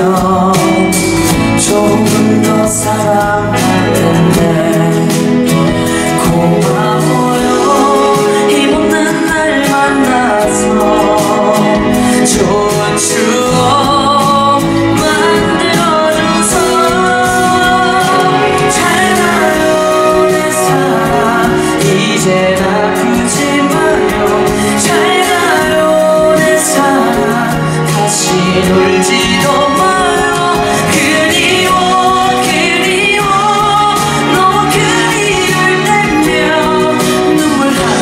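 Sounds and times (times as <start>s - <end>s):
instrumental backing music: 0.0s - 38.0s
man singing into a microphone: 0.0s - 38.0s.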